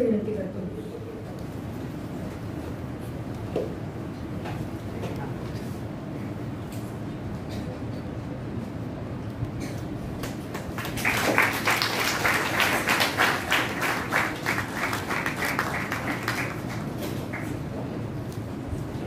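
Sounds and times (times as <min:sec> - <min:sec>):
audience clapping: 0:10.2 - 0:17.8.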